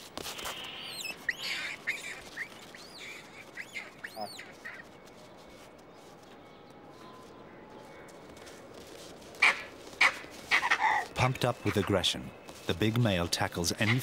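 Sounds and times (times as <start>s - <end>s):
monkeys screaming: 0.8s - 4.9s, 9.4s - 12.0s.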